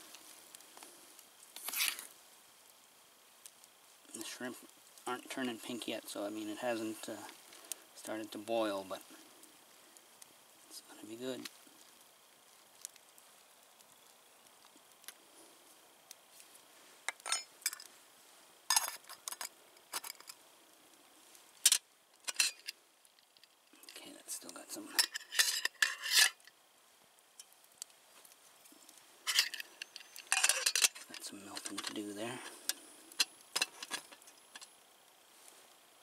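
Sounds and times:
metal spoon scraping cookpot: 25.0s - 26.4s, 29.3s - 32.0s.

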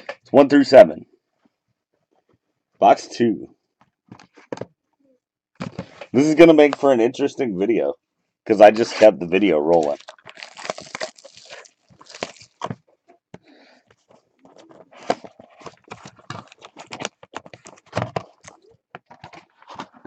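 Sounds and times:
foil wrapper crinkling: 9.7s - 12.8s, 14.0s - 18.6s.

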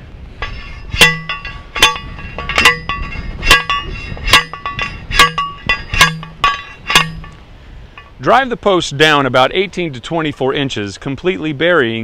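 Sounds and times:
post driver clanging on steel post: 0.4s - 8.2s.

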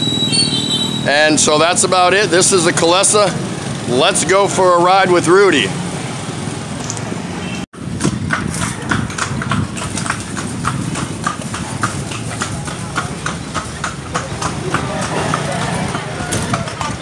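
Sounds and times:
horse hooves clip-clopping on asphalt: 7.8s - 17.0s.

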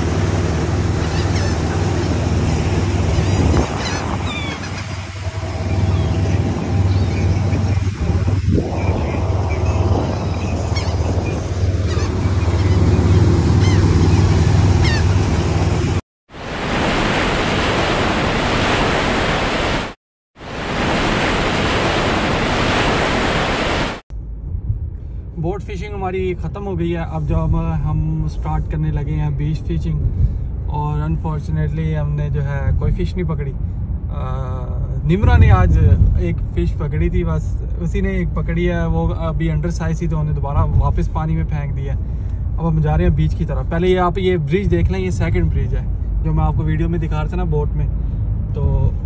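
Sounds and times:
boat engine droning: 0.0s - 24.0s
churning wake: 0.0s - 24.0s
gull cries: 0.9s - 7.7s, 8.8s - 15.4s
wind rushing: 2.3s - 25.3s.

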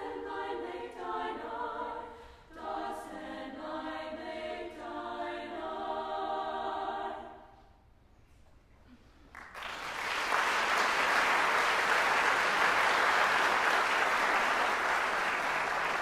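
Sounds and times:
audience applause: 9.3s - 16.0s.

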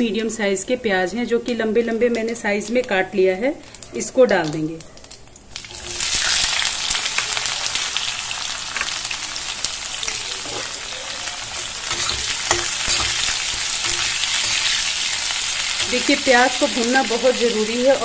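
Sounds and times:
onions sizzling in hot oil: 1.5s - 18.0s
steel spatula knocking on pan: 11.9s - 14.8s.

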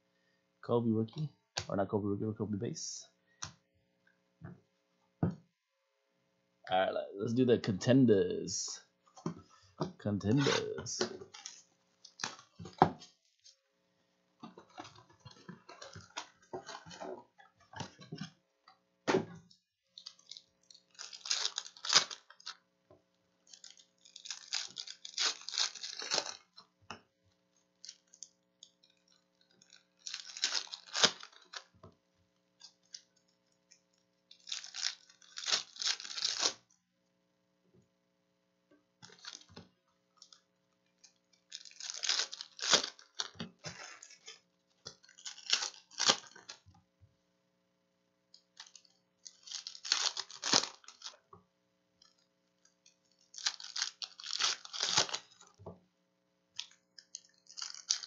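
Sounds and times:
rustling of cards and wrappers: 9.4s - 13.6s, 14.4s - 18.3s, 19.9s - 22.7s, 23.4s - 26.6s, 27.6s - 31.7s, 32.6s - 36.7s, 39.0s - 46.6s, 48.4s - 51.2s, 52.0s - 55.6s, 56.6s - 58.0s
wrappers crinkling and tearing: 10.3s - 12.8s, 19.9s - 22.7s, 23.4s - 26.6s, 27.6s - 31.7s, 32.6s - 36.7s, 39.0s - 39.6s, 40.2s - 46.6s, 48.5s - 51.2s, 52.0s - 55.6s, 56.6s - 58.0s.

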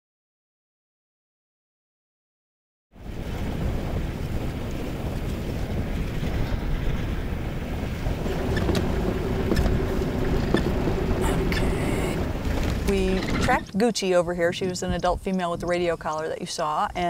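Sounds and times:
wind: 2.9s - 17.0s
vehicle rumble: 3.0s - 16.3s
faint steady hum: 5.7s - 17.0s.

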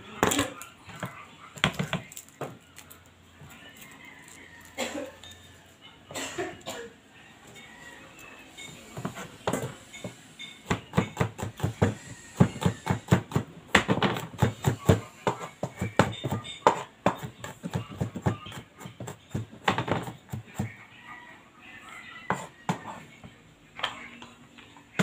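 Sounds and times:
knife chopping on plastic board: 9.0s - 20.7s.

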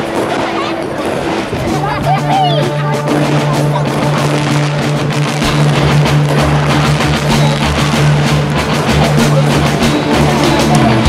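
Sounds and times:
loud music with drums: 0.0s - 11.0s.

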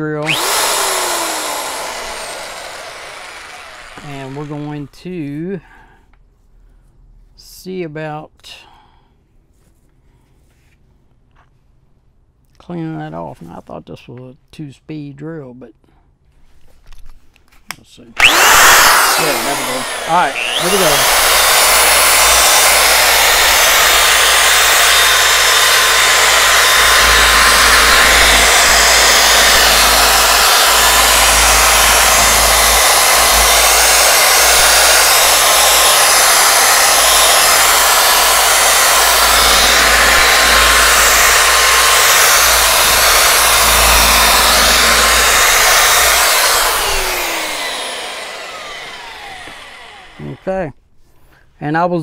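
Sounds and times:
drill wire brush scraping metal: 18.2s - 47.6s.

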